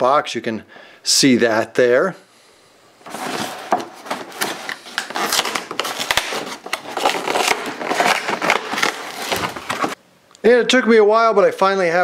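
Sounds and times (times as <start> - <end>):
toy packaging crackling and rustling: 3.1 - 10.0.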